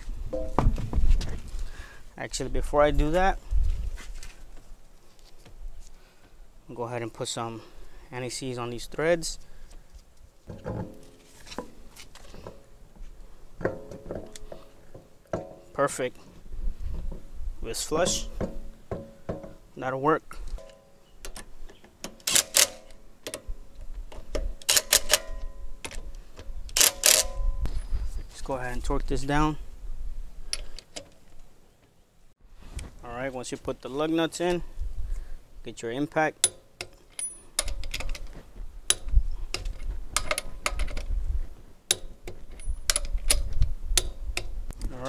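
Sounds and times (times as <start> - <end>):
socket clinking on lug nuts: 36.4 - 38.2
metallic clicks of lug nuts: 36.4 - 41.1, 41.9 - 44.6.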